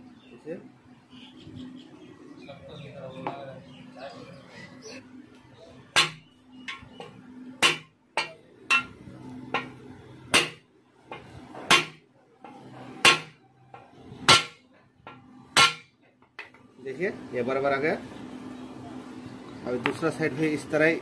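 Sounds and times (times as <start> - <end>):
hammer striking metal: 6.0 - 6.9, 7.6 - 12.0, 13.0 - 13.4, 14.3 - 14.6, 15.6 - 15.9.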